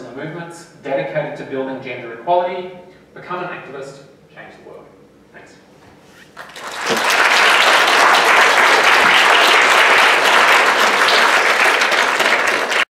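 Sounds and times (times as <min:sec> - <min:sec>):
audience applauding: 0:06.4 - 0:12.9.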